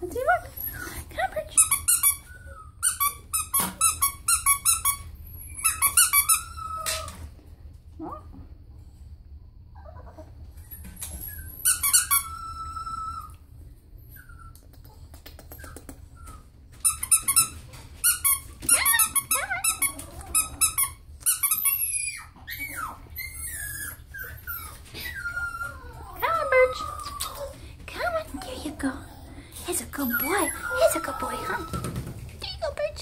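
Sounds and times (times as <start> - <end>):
plush toy squeaking: 16.8 - 24.7.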